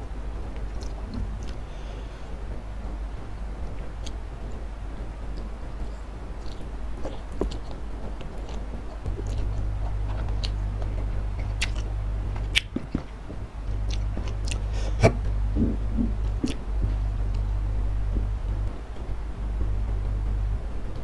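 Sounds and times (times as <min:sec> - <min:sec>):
low hum: 0:00.0 - 0:21.0
noodles chewing: 0:06.4 - 0:16.7
wet mouth clicks: 0:11.4 - 0:11.9, 0:13.9 - 0:16.6.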